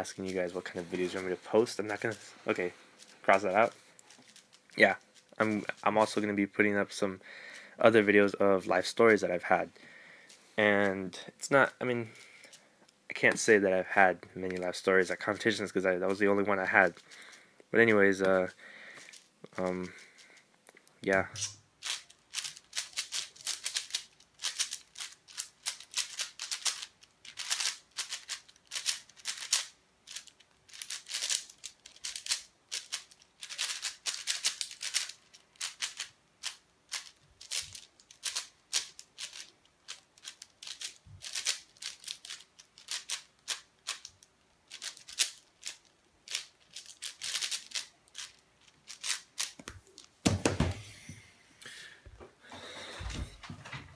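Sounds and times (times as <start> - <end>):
speed cube clicking: 21.4 - 49.6.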